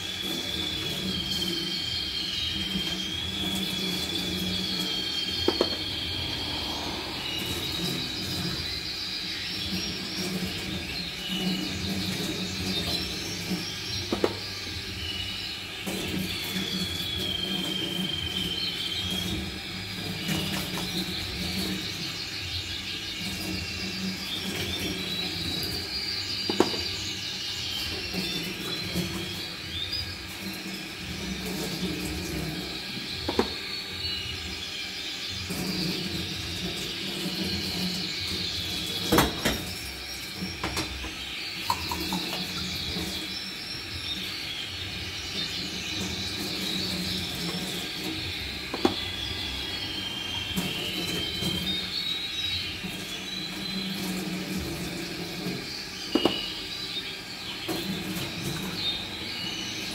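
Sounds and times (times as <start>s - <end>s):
tap water running into sink: 0.0s - 6.4s, 7.2s - 34.6s, 35.3s - 59.9s
canaries singing trills: 0.0s - 59.9s
plastic knocking against sink: 5.4s - 5.8s, 14.1s - 14.5s, 26.5s - 26.9s, 33.3s - 33.6s, 48.7s - 49.1s, 56.1s - 56.5s.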